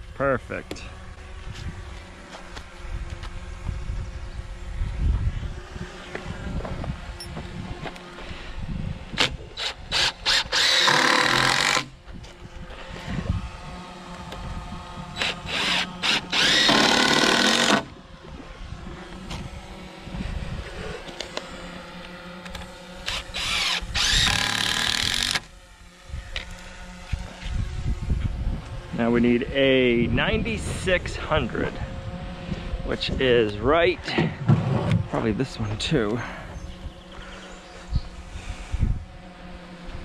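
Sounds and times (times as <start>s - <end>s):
impact driver driving screws into wood: 9.2s - 11.9s, 15.2s - 17.9s, 22.5s - 25.5s.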